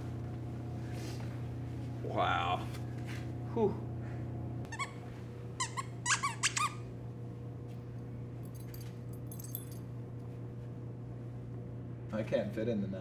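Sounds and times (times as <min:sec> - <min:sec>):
squeaky dog toy squeaks: 0:04.7 - 0:05.0, 0:05.6 - 0:06.8.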